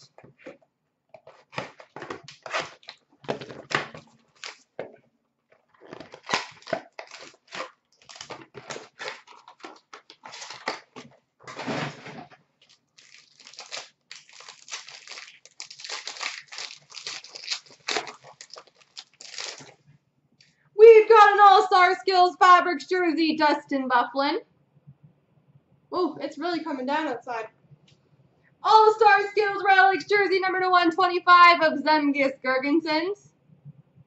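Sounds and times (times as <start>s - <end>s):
foil wrappers tearing and crinkling: 1.2s - 4.8s, 5.8s - 12.0s, 12.6s - 19.8s.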